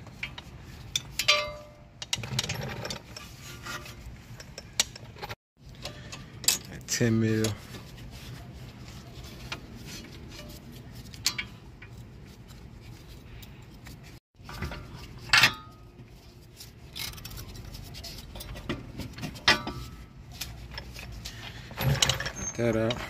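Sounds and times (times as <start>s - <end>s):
metallic clinks and knocks: 0.1s - 3.2s.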